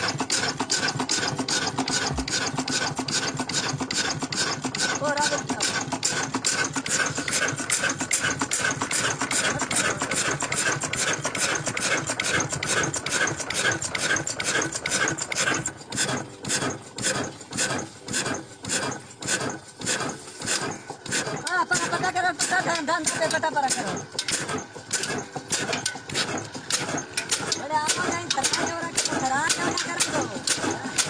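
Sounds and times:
old diesel engine beating: 0:00.0 - 0:31.0.

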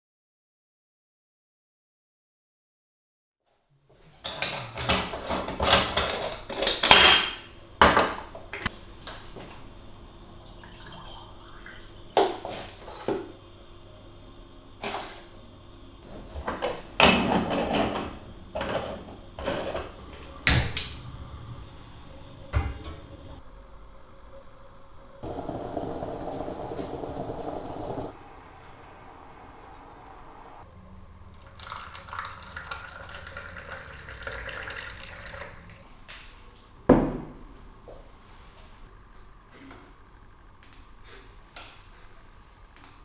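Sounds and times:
gas burner hissing: 0:20.0 - 0:23.4, 0:25.2 - 0:30.7.

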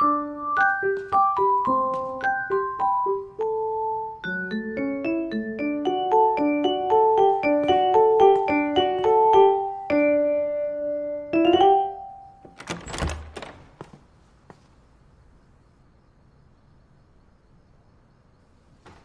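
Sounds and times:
light piano music: 0:00.0 - 0:13.3.

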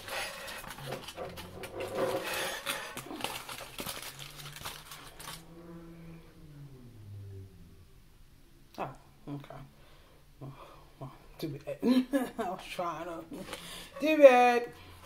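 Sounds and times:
foil wrapper crinkling: 0:00.0 - 0:05.4
low steady hum: 0:00.0 - 0:15.0.

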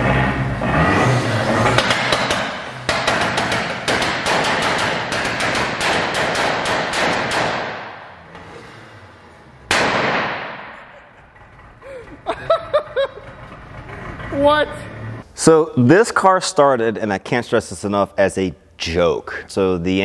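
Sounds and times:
loud exhaust bang: 0:00.0 - 0:05.8, 0:06.6 - 0:11.8.

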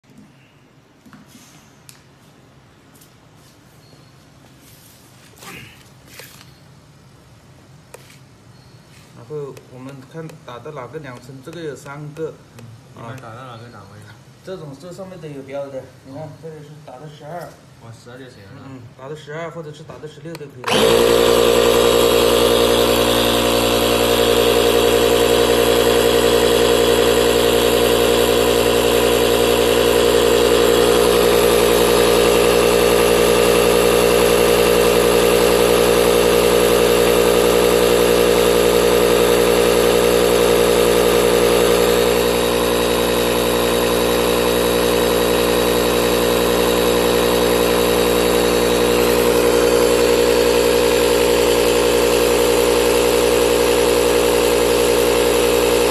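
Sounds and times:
inflator pump motor hum: 0:20.6 - 0:55.9.

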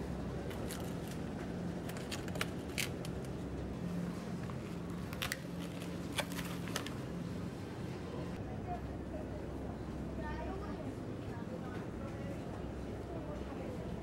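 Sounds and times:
supermarket low hum: 0:00.0 - 0:14.0
plastic punnet clicks and crinkles: 0:00.5 - 0:01.2, 0:01.8 - 0:03.4, 0:05.0 - 0:07.0.

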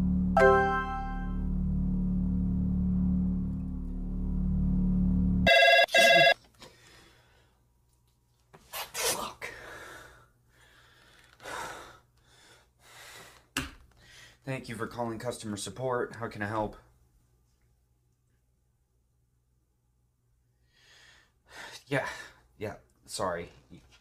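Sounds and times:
low film score drone: 0:00.0 - 0:05.5
telephone ringing: 0:05.5 - 0:06.4.

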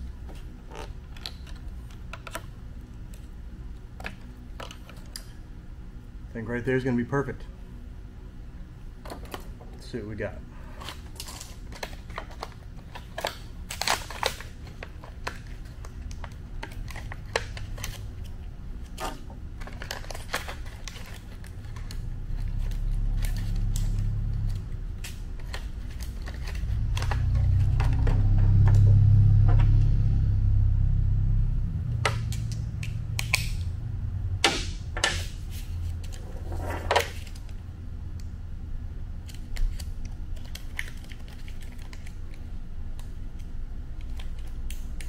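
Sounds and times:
clicks and crinkles of handling: 0:10.8 - 0:28.2, 0:39.2 - 0:45.0
low rumble: 0:21.6 - 0:39.3.

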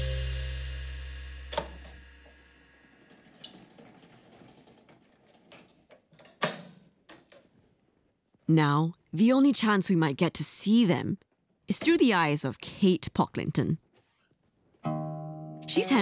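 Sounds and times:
background music chord: 0:00.0 - 0:01.8, 0:14.8 - 0:16.0.

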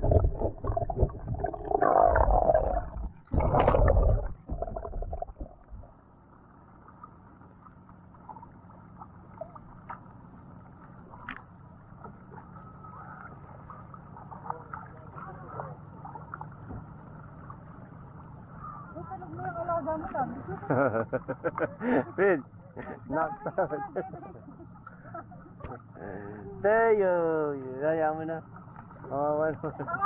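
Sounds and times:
muffled underwater rush: 0:00.0 - 0:07.4.

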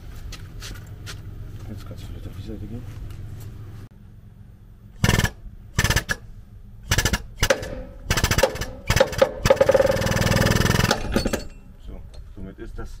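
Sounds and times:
air-hydraulic pump chattering: 0:05.0 - 0:11.6.

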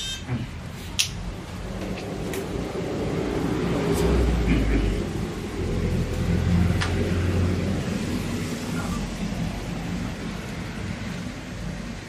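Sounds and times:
traffic rumble: 0:00.0 - 0:12.0
sharp click: 0:01.0 - 0:01.2.

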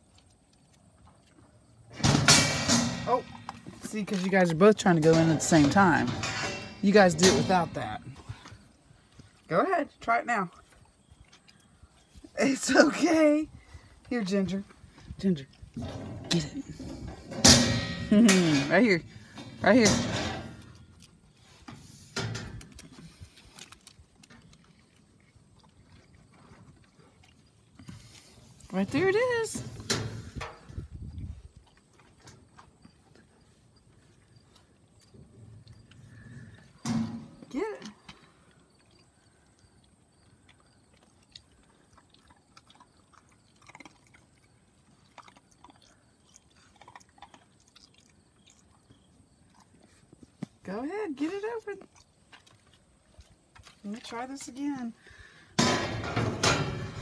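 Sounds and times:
puppies crunching at dog feeder: 0:20.4 - 0:35.1, 0:37.9 - 0:55.3.

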